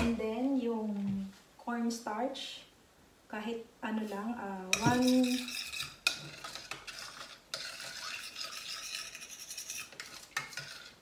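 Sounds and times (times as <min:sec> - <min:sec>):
spoon scraping metal pot: 0:04.7 - 0:11.0.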